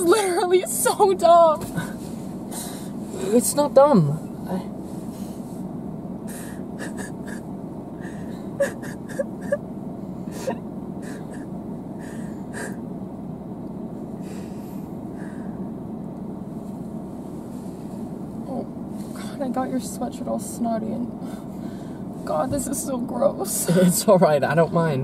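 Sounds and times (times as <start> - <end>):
sniffling: 6.3 - 7.4, 8.0 - 9.6, 10.2 - 12.8
girl crying: 6.4 - 7.4, 8.0 - 9.6, 10.4 - 11.5
gasping breaths: 8.0 - 8.6, 10.3 - 12.8.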